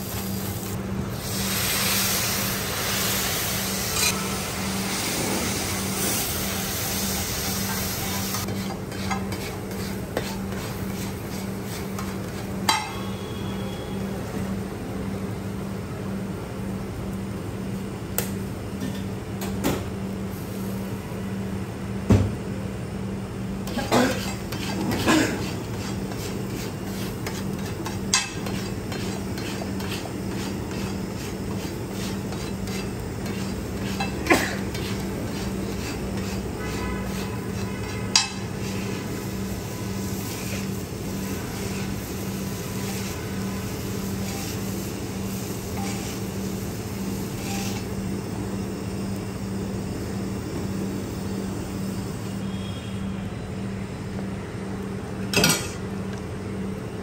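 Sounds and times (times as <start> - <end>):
metal spatula scraping griddle: 7.4 - 13.1, 23.7 - 39.2, 40.1 - 46.3, 47.2 - 47.9.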